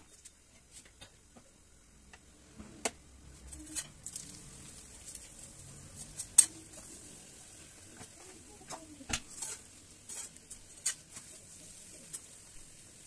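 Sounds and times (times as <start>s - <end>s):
ghee sizzling faintly: 0.0s - 13.0s
metal spatula scraping iron griddle: 3.4s - 5.3s, 9.2s - 12.2s.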